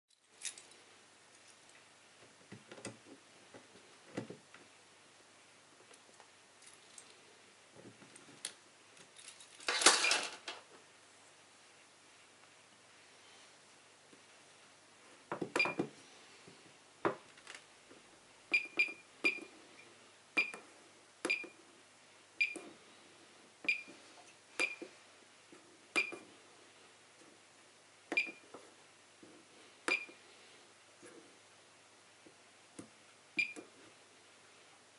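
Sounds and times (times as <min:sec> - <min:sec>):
keypad clicks with electronic beeps: 0:15.6 - 0:15.8, 0:18.5 - 0:19.5, 0:20.4 - 0:20.6, 0:21.2 - 0:21.6, 0:22.4 - 0:22.7, 0:23.7 - 0:24.0, 0:24.6 - 0:24.9, 0:26.0 - 0:26.2, 0:28.1 - 0:28.4, 0:29.9 - 0:30.2, 0:33.4 - 0:33.7.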